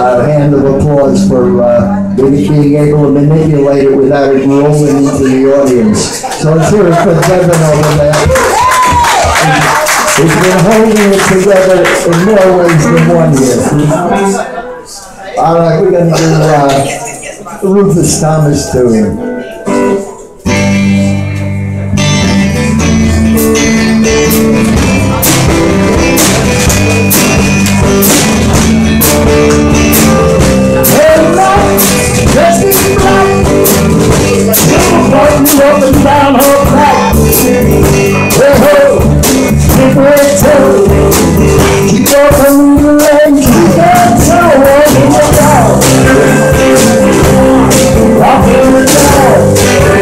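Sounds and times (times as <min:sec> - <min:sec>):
live blues rock band: 0:17.8 - 0:50.0.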